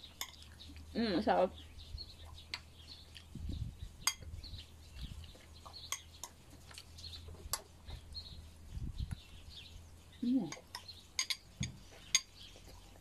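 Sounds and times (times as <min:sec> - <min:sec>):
birds chirping: 0:00.0 - 0:13.0
metal spoon clinking ceramic bowl: 0:10.5 - 0:12.3.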